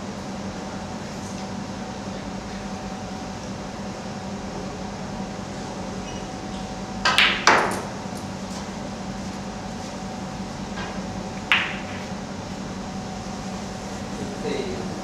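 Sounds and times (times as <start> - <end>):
room hum: 0.0 - 15.0
snooker balls clicking: 11.5 - 12.1.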